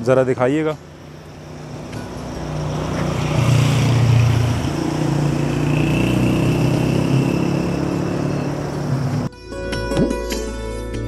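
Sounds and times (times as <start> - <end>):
vehicle engine humming: 0.5 - 9.3.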